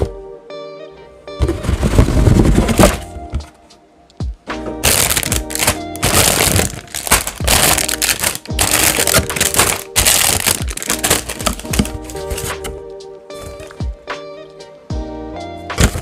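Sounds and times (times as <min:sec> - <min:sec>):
background music: 0:00.0 - 0:16.0
plastic bags crinkling: 0:04.8 - 0:12.7.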